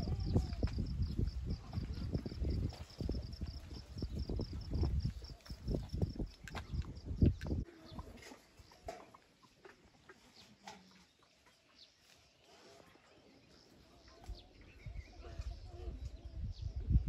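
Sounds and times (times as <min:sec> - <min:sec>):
faint farm animal calls: 0:07.6 - 0:16.8.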